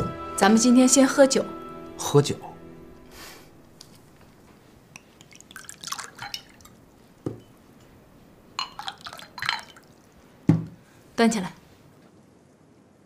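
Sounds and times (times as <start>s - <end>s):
drink glugging into a glass: 5.1s - 7.5s, 8.6s - 10.1s
knock: 10.5s - 10.8s.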